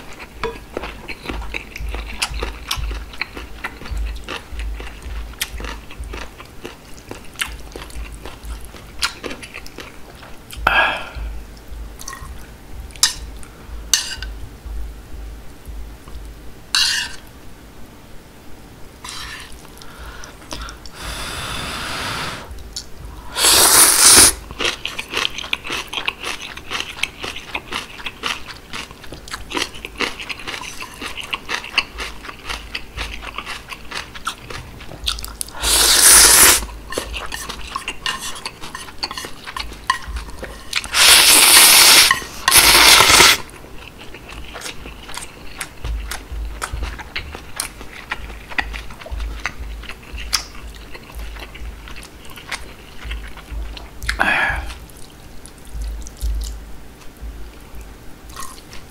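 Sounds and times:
soft wet chewing: 0.0s - 14.8s, 19.0s - 21.2s, 24.2s - 58.9s
slurping noodles: 20.9s - 22.5s, 23.3s - 24.4s, 35.6s - 36.7s, 40.7s - 43.5s.

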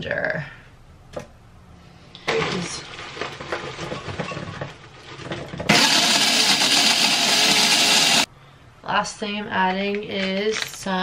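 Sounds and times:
kitchen items clattering: 2.3s - 8.2s
blender running loudly: 5.7s - 8.3s.

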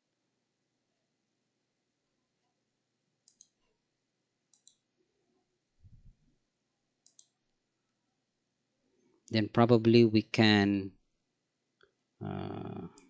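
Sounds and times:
computer mouse clicks: 3.2s - 3.7s, 4.5s - 4.9s, 7.0s - 7.4s.

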